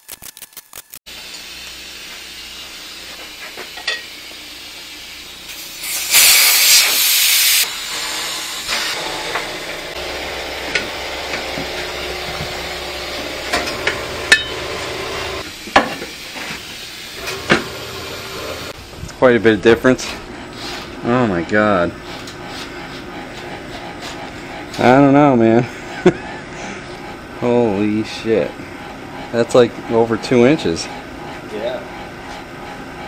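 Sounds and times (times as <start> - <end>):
air hissing out: 5.5 - 9.0.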